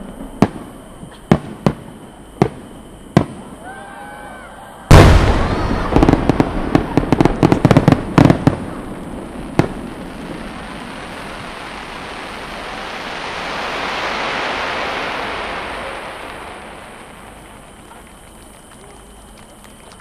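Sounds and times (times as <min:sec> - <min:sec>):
firework cracks and booms: 0:00.0 - 0:04.0, 0:04.9 - 0:20.0.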